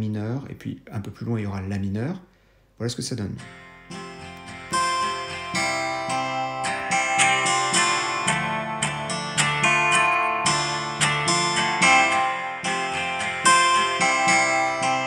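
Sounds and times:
acoustic guitar strumming: 3.4s - 15.0s.

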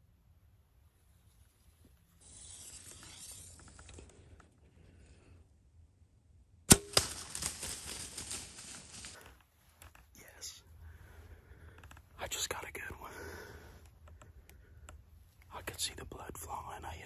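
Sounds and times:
bow string release crack: 2.2s - 4.6s
animal crashing through dry leaves: 6.7s - 9.2s.

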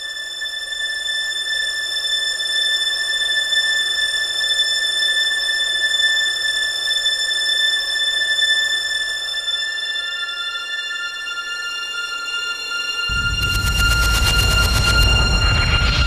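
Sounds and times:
high-pitched drone: 12.5s - 16.0s.

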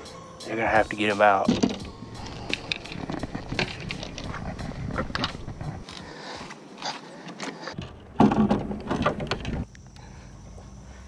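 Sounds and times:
paddle and rods knocking: 1.5s - 1.9s.

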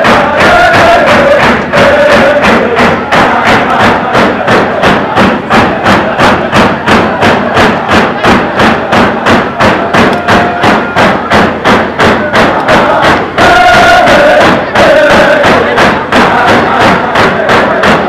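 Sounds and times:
hand drums beating: 0.0s - 18.0s.

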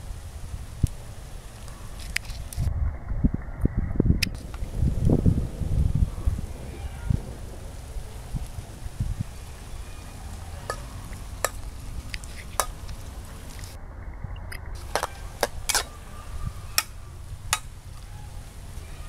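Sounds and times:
spatula scraping in a wok: 14.8s - 16.0s.

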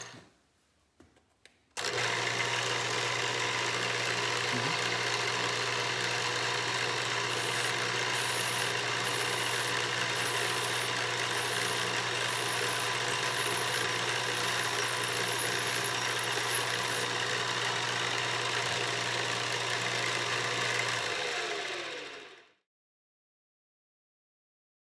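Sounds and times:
high drill whine: 0.0s - 0.2s, 1.8s - 22.4s
motor winding down: 1.8s - 22.6s
drill press boring into metal: 3.7s - 21.6s.

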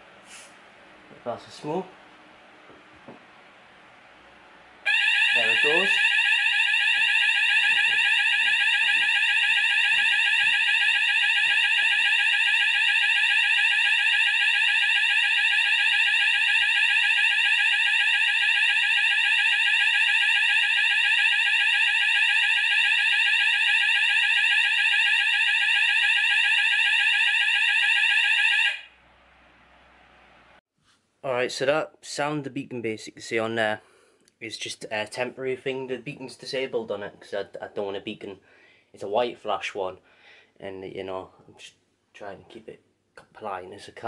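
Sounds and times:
electronic fire alarm tone: 4.8s - 29.0s.

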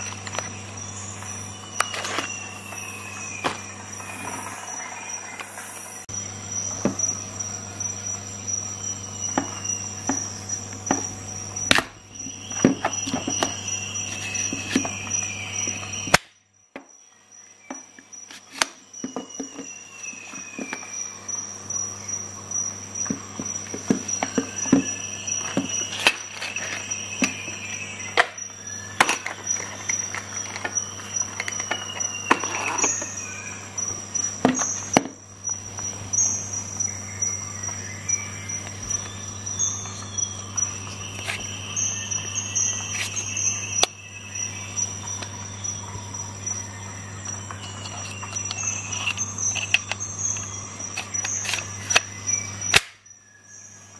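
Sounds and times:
high whine: 0.0s - 16.3s.

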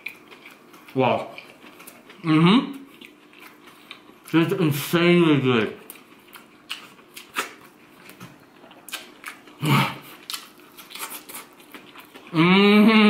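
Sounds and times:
wet mouth chewing: 0.0s - 4.4s, 5.8s - 12.4s
person humming mm: 12.3s - 13.0s.

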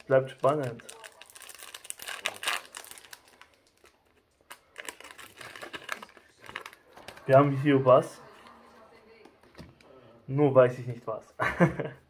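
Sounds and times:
foil pack crinkling: 0.0s - 7.4s.

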